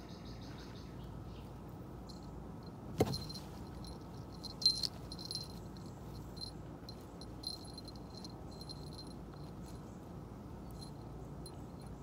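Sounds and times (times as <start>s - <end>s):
steady low rumble: 1.1s - 12.0s.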